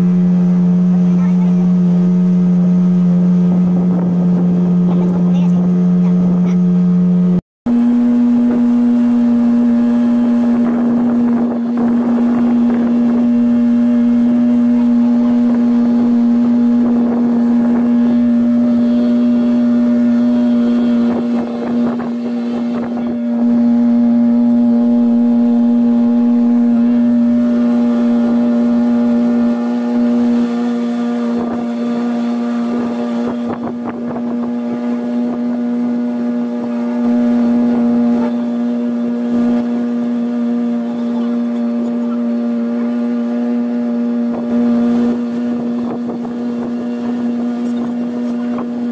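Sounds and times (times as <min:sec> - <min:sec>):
motorboat engine drone: 0:00.0 - 0:48.9
water rushing: 0:00.0 - 0:48.9
wind noise: 0:07.8 - 0:40.4, 0:43.0 - 0:48.9.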